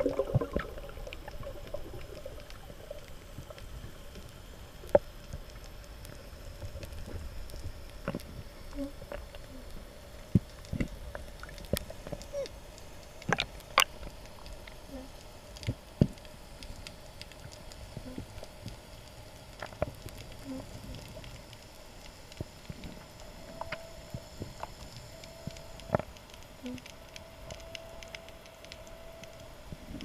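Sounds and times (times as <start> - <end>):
faint steady hum: 0.0 - 30.0
sharp underwater clicks and knocks: 13.2 - 14.7.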